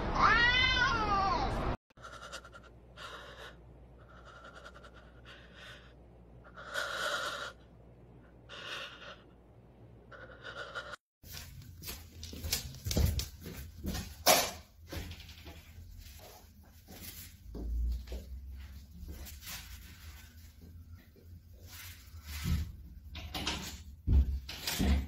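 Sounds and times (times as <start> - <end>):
cat yowling: 0.2 - 1.5.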